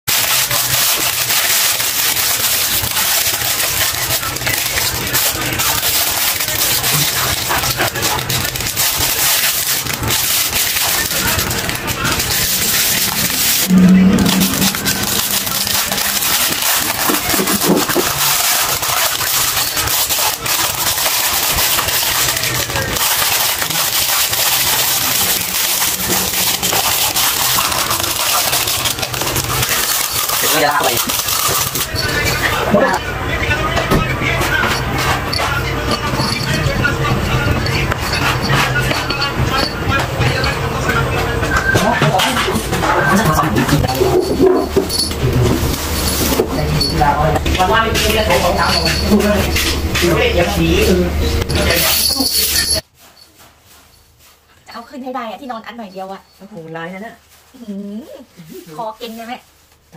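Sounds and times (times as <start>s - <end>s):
plastic bag crinkling: 0.1s - 33.1s
low steady hum: 10.8s - 19.0s.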